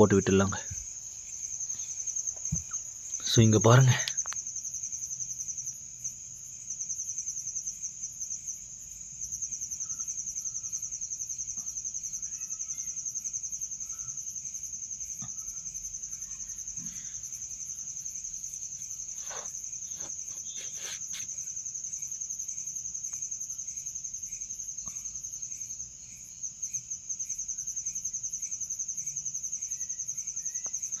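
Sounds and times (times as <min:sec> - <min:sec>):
cricket trilling: 0:00.0 - 0:31.0
faint clicks: 0:04.0 - 0:04.4.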